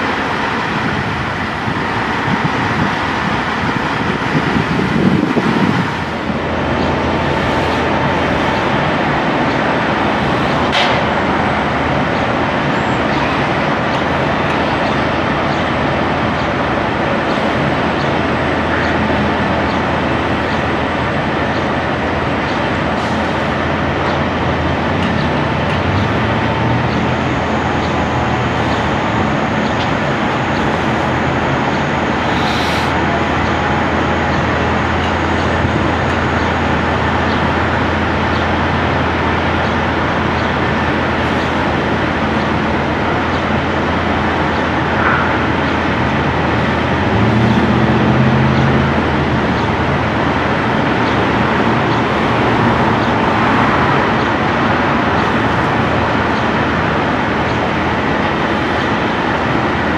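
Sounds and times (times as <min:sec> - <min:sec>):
road traffic noise: 0:00.0 - 0:59.9.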